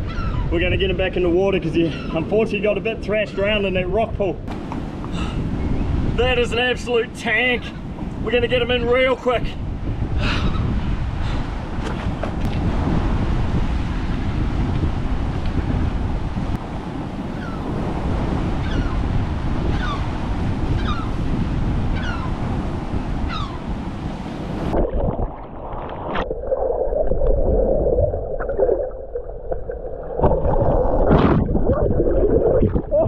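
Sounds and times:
wind buffeting the microphone: 0:00.0 - 0:28.8, 0:30.2 - 0:33.0
waves sloshing: 0:11.1 - 0:33.0
gurgling swirling water: 0:24.6 - 0:33.0.

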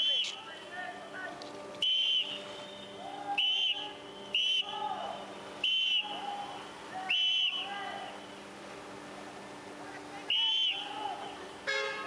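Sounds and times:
shrill whistle blasts: 0:01.8 - 0:04.7, 0:05.6 - 0:06.2, 0:07.1 - 0:07.6, 0:10.3 - 0:10.9.

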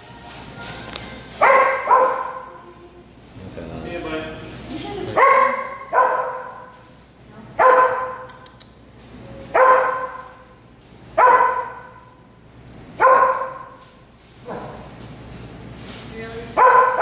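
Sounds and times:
dog barking: 0:01.4 - 0:02.5, 0:05.2 - 0:06.7, 0:07.6 - 0:08.3, 0:09.5 - 0:10.4, 0:11.2 - 0:12.0, 0:13.0 - 0:13.8, 0:16.6 - 0:17.0.

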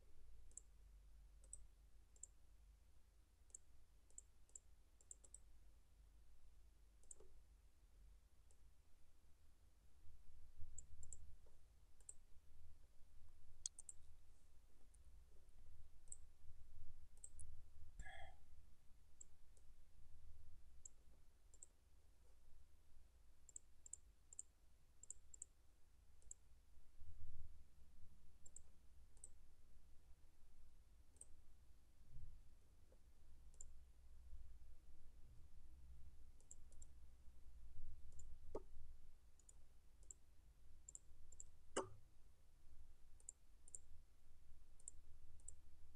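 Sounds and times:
computer mouse clicks: 0:00.5 - 0:00.7, 0:01.4 - 0:02.4, 0:03.5 - 0:05.5, 0:07.0 - 0:07.4, 0:10.8 - 0:11.2, 0:12.0 - 0:12.2, 0:13.6 - 0:14.1, 0:20.8 - 0:21.7, 0:23.5 - 0:25.5, 0:28.4 - 0:29.4, 0:33.5 - 0:33.7, 0:36.4 - 0:36.9, 0:38.1 - 0:38.7, 0:39.4 - 0:40.2, 0:40.9 - 0:42.0, 0:43.2 - 0:43.9, 0:44.8 - 0:45.6.

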